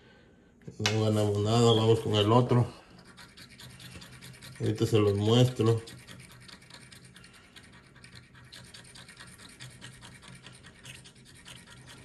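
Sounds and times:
scratch card scraping: 0:01.8 - 0:12.0.

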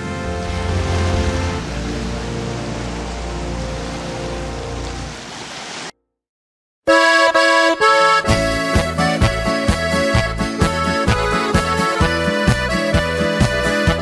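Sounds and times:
noisy wash: 0:00.0 - 0:05.9.

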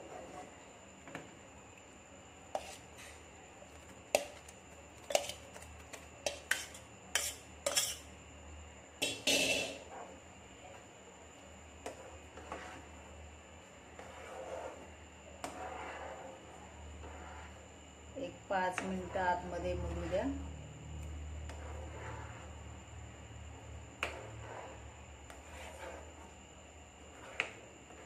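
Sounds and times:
metal spoon scraping metal pan: 0:02.5 - 0:03.2, 0:05.1 - 0:05.4, 0:06.2 - 0:08.1, 0:09.0 - 0:09.9.

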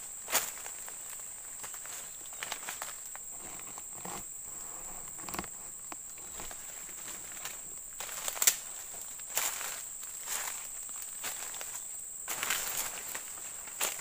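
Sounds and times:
high-pitched insect drone: 0:00.0 - 0:14.0
footsteps crunching through leaves: 0:06.2 - 0:14.0.

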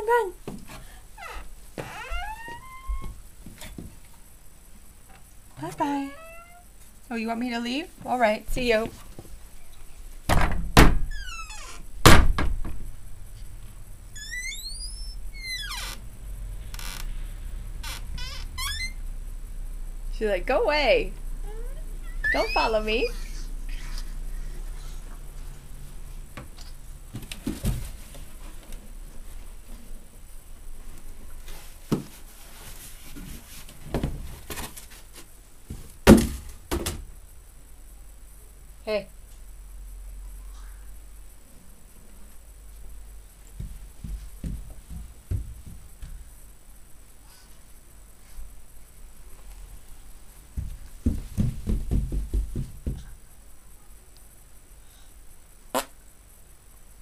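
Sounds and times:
short high squeaks: 0:01.2 - 0:03.2, 0:06.0 - 0:06.7, 0:11.1 - 0:11.9, 0:14.2 - 0:16.0, 0:17.9 - 0:19.0, 0:21.5 - 0:24.5
door bumping shut: 0:10.3 - 0:12.9.

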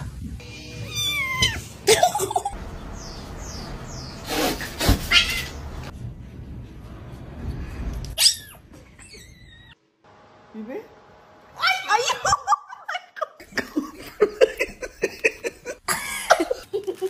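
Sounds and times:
cats meowing: 0:00.4 - 0:01.8, 0:05.0 - 0:05.7.

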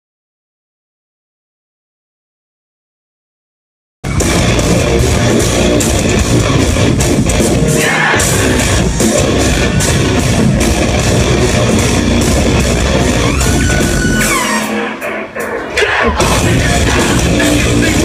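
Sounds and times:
live metal band playing: 0:04.0 - 0:18.0.

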